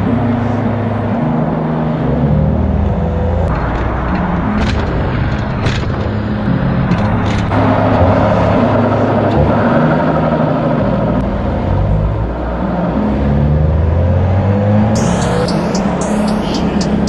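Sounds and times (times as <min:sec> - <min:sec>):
car engine running: 0:00.0 - 0:17.0
tyre and wind noise: 0:02.6 - 0:09.7.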